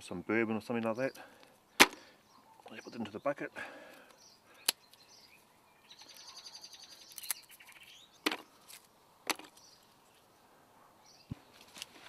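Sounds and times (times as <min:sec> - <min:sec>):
wood strips cracking: 0:01.8 - 0:02.1, 0:07.0 - 0:09.6.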